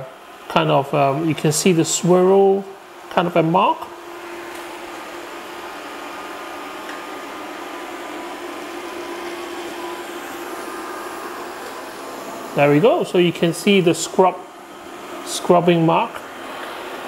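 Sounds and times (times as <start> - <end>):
robot vacuum whirring: 3.9 - 17.0.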